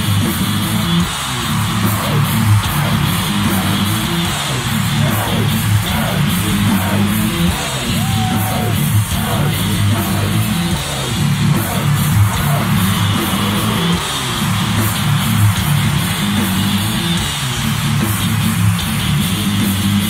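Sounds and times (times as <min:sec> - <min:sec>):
heavy metal band playing: 0:00.0 - 0:20.0.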